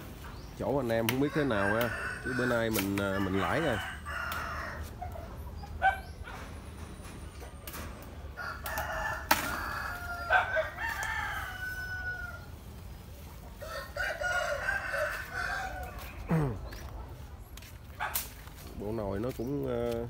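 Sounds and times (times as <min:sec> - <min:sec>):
roosters crowing: 0:00.0 - 0:17.1.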